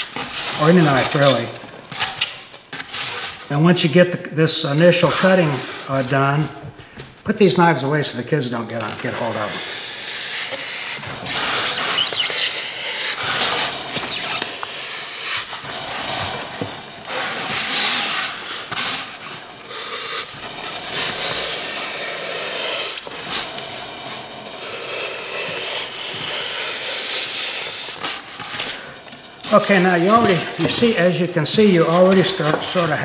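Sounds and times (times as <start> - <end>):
scraping and rubbing on foam: 0.0 - 3.7, 4.7 - 6.5, 8.7 - 33.0
knife cutting through foam: 9.1 - 32.9.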